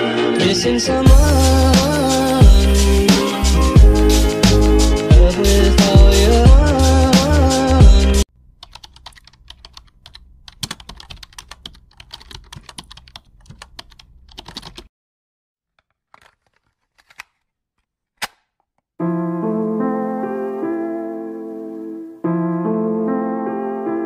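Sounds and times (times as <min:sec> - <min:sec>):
keyboard keys clicking: 0:08.4 - 0:14.9, 0:15.8 - 0:17.4.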